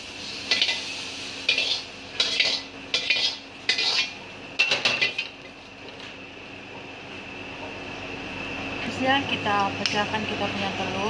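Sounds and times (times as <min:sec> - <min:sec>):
metal ladle scraping a wok: 0:00.5 - 0:04.2.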